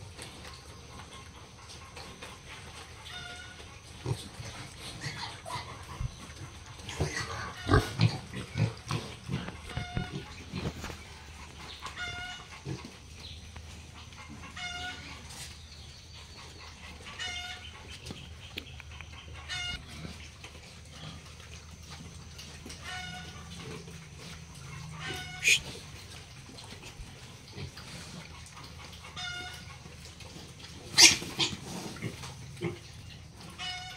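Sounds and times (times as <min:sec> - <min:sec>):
pigs grunting and snuffling: 0:00.0 - 0:33.9
short high-pitched call: 0:25.4 - 0:25.7.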